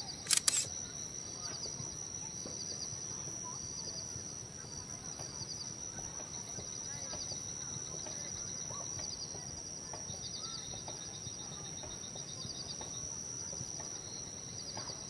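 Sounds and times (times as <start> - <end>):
pulsed insect trills: 0.0 - 15.0.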